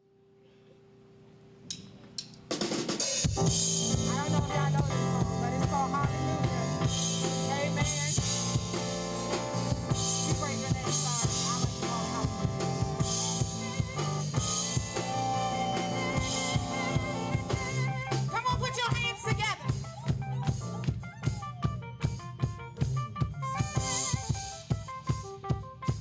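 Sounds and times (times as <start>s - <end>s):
drum kit with cymbals: 1.7s - 26.0s
live gospel band playing: 2.7s - 26.0s
person singing: 10.6s - 18.4s.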